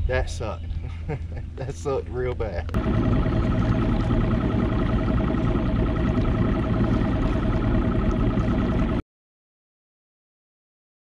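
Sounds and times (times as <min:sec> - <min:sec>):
outboard motor running: 0:02.7 - 0:09.0.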